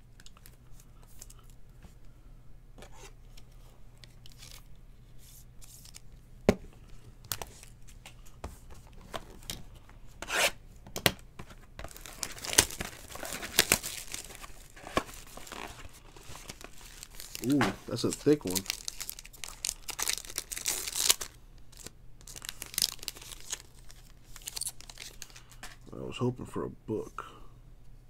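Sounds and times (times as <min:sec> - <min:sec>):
trading cards clicking and rustling: 0:11.8 - 0:23.7
foil wrapper tearing and crinkling: 0:11.8 - 0:25.4.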